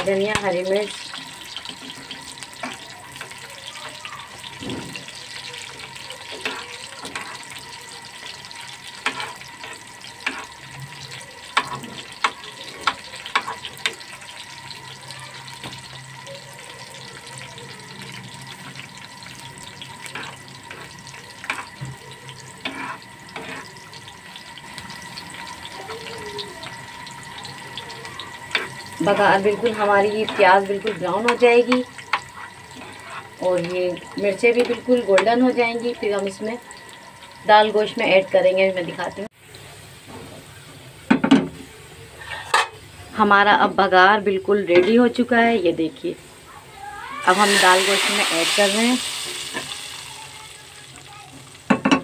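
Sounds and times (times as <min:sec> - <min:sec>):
onions sizzling in hot oil: 0:00.0 - 0:52.0
spoon scraping a metal pan: 0:06.3 - 0:07.6, 0:08.2 - 0:10.6, 0:22.6 - 0:24.0, 0:28.5 - 0:35.4, 0:42.2 - 0:42.8.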